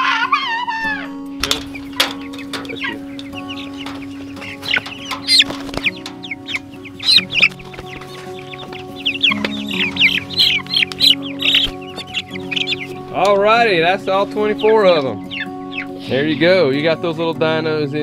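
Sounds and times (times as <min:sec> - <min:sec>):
chicks cheeping: 0:00.0 - 0:17.6.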